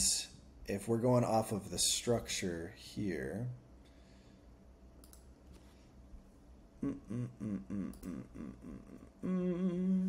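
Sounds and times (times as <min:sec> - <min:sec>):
faint clicks: 0:05.0 - 0:05.3
man humming: 0:06.8 - 0:10.0.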